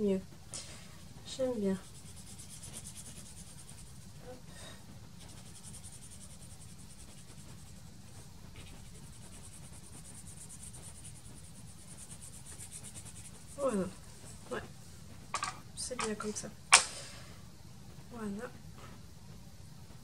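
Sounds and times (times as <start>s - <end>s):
rapidly pulsing hiss: 0.0s - 15.3s.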